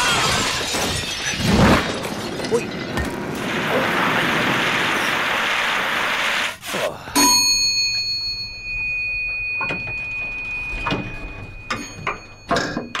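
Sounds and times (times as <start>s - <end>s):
elevator chime: 7.2s - 13.0s
clicks and knocks: 9.1s - 13.0s.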